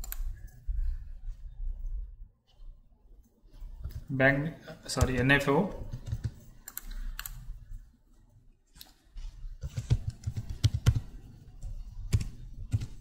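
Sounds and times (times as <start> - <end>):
computer keyboard typing: 0.0 - 0.6, 4.9 - 7.5, 9.6 - 13.0.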